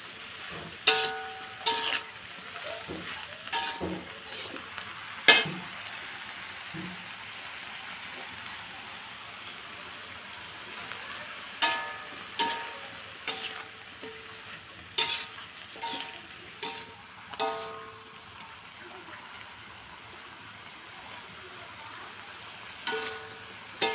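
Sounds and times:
vegetables sizzling in a wok: 0.0s - 23.9s
metal spatula clanking on wok: 0.5s - 2.2s, 2.8s - 4.5s, 5.3s - 5.7s, 11.6s - 18.5s, 22.8s - 23.9s.

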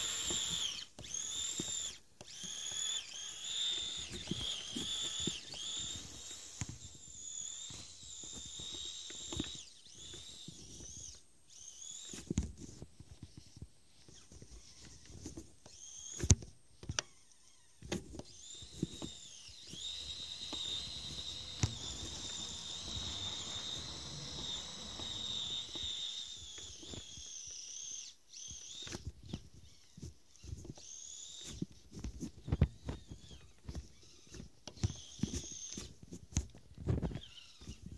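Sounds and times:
electric motor whining: 0.0s - 12.3s, 17.0s - 29.0s.

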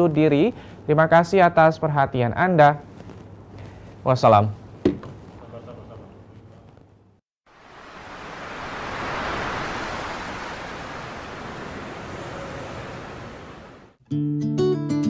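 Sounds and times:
steady rushing noise: 7.5s - 14.0s.

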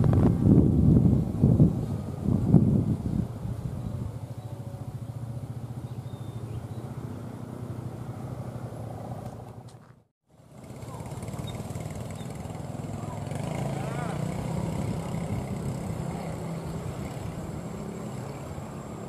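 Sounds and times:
train engine drone with pulsing: 1.0s - 8.0s.

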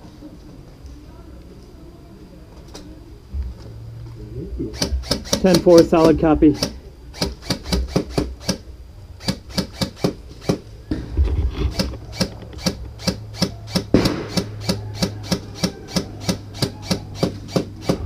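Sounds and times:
airsoft gunfire cracks: 11.8s - 18.0s.

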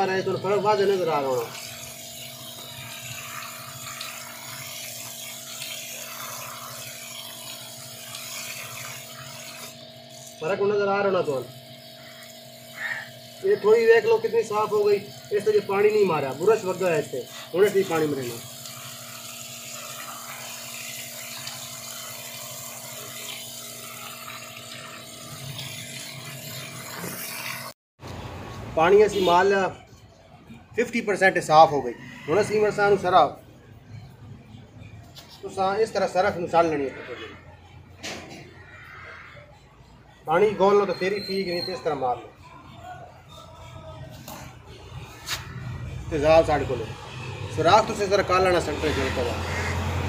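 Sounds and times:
water jet spraying and splashing: 0.0s - 27.8s, 45.0s - 50.0s
electric water pump humming: 0.0s - 29.8s, 44.0s - 50.0s.

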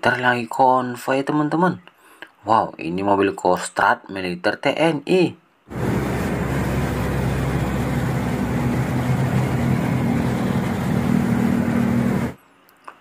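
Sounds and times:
traffic rushing noise: 5.7s - 12.4s
vehicle engine hum: 5.7s - 12.4s.

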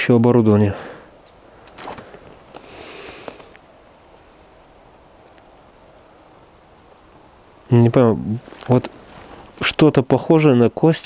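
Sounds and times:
soft rustle: 1.2s - 10.1s
faint high chirp: 4.3s - 4.8s, 6.5s - 7.2s.

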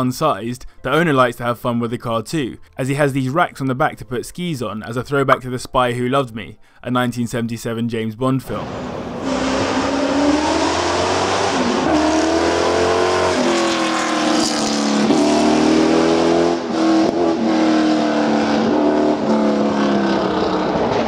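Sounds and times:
car engine accelerating hard: 8.6s - 21.0s.

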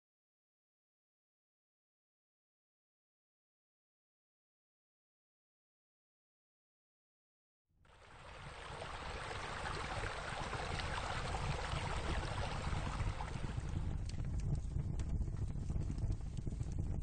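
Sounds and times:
water running and splashing: 8.0s - 13.8s
low rumble: 8.4s - 17.0s.

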